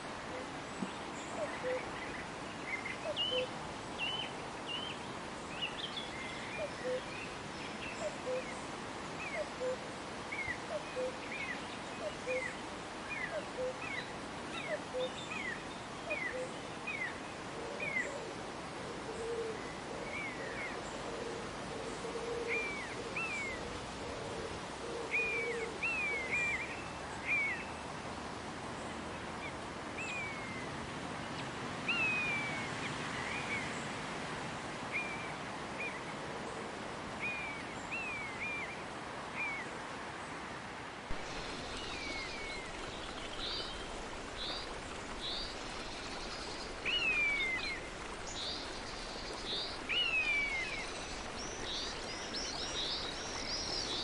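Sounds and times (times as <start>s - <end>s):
flowing river water: 0.0s - 54.0s
birds singing: 41.1s - 54.0s
low bird warbling: 41.1s - 54.0s.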